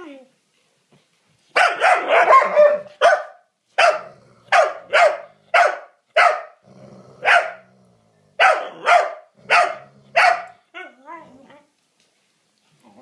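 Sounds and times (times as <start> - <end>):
young dog barking: 1.5 - 6.6, 7.2 - 7.6, 8.4 - 11.0
dog growling: 4.0 - 4.5, 6.6 - 10.2.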